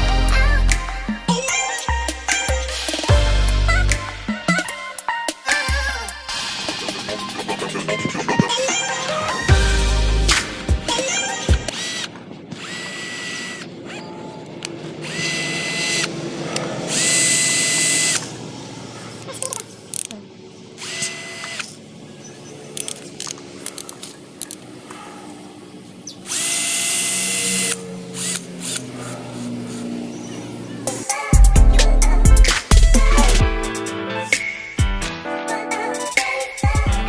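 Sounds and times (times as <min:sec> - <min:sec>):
cordless drill whining: 0:10.9 - 0:18.5, 0:20.8 - 0:21.9
sharp mechanical clicks: 0:22.7 - 0:24.7.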